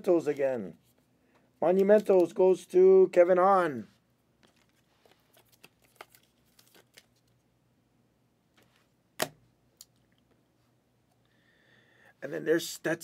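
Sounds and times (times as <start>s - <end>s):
plastic sleeves crinkling: 4.4s - 7.5s.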